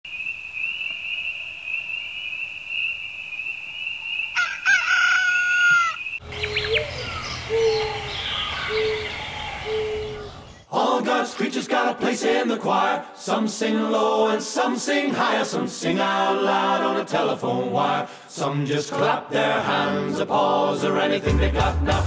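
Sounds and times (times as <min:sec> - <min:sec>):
birds chirping: 0:00.2 - 0:10.7
rooster crowing: 0:04.4 - 0:06.6.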